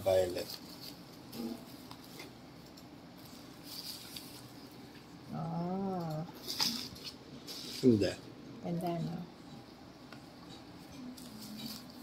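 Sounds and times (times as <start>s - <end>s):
bubble wrap crinkling: 0.1s - 5.0s, 6.4s - 8.2s, 11.1s - 12.0s
person humming: 5.3s - 6.3s.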